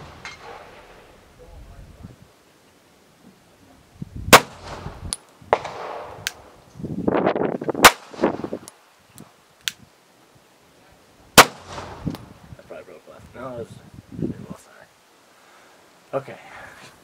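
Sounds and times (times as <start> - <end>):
pistol shots: 4.3 - 4.9, 5.5 - 6.4, 7.8 - 8.3, 11.4 - 12.0.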